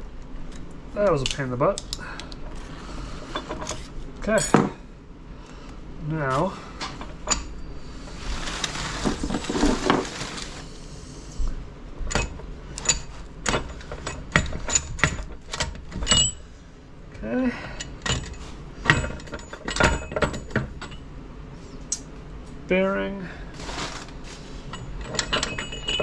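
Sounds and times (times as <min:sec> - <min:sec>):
metal parts rattling and scraping: 0:00.5 - 0:04.8, 0:06.3 - 0:10.7, 0:12.0 - 0:16.5, 0:17.6 - 0:21.1, 0:23.5 - 0:26.0
metallic clinks and knocks: 0:06.8 - 0:07.7, 0:12.1 - 0:16.4, 0:17.8 - 0:21.1, 0:24.7 - 0:26.0.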